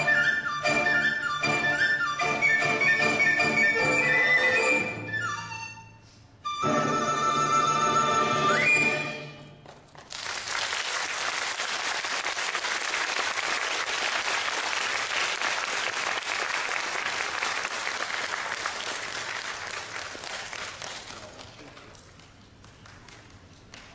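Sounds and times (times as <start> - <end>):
audience applause: 10.0 - 23.9.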